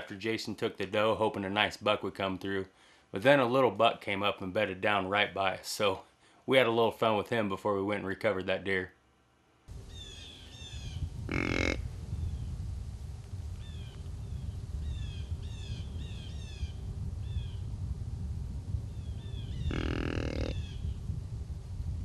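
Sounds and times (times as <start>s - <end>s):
steady low rumble: 9.7s - 22.0s
small birds chirping: 9.9s - 12.6s, 13.6s - 17.6s, 18.9s - 21.0s
crow cawing: 19.7s - 20.6s.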